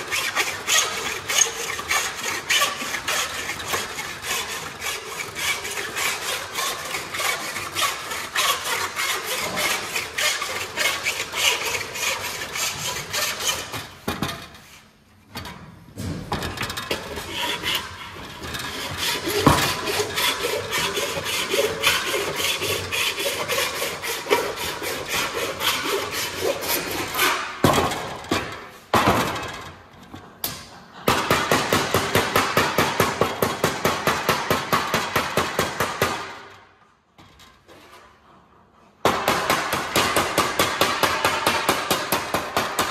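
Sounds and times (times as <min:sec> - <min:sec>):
hand tool rasping on sheet metal: 0:00.0 - 0:14.4, 0:16.6 - 0:28.5, 0:39.1 - 0:42.9
hammering on sheet metal: 0:31.0 - 0:36.4, 0:39.0 - 0:42.9.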